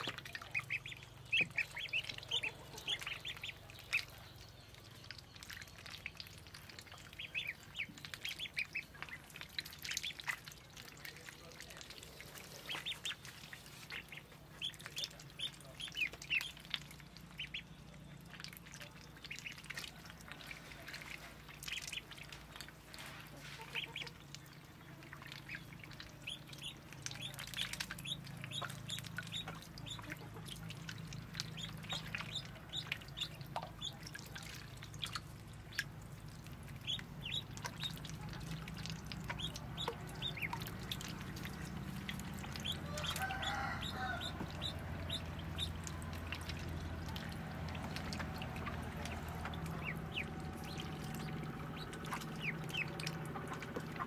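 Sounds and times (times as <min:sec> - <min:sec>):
ducklings peeping: 0:00.0 - 0:54.0
ducklings splashing in water: 0:00.0 - 0:54.0
low steady hum: 0:00.0 - 0:54.0.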